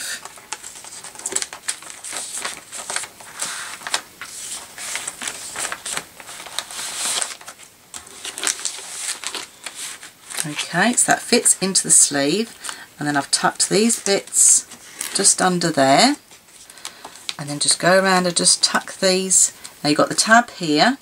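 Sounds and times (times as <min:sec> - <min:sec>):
plastic sleeve crinkling: 0:00.0 - 0:15.4.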